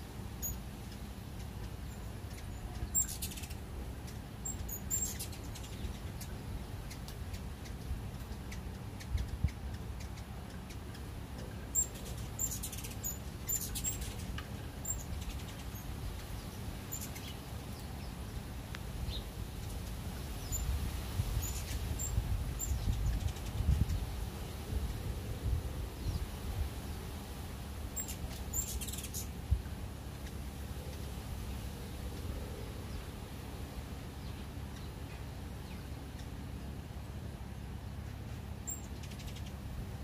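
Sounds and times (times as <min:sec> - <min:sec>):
hummingbirds chirping: 0:00.0 - 0:40.0
wind rumble on microphone: 0:01.8 - 0:18.1, 0:18.7 - 0:33.3.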